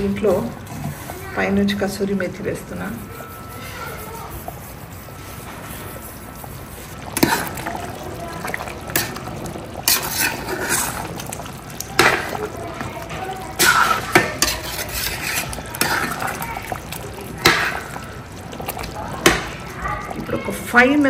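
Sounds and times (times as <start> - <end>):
thick gravy slopping: 0.0 - 21.0
spoon knocking and scraping pot: 9.8 - 12.5, 13.5 - 19.6.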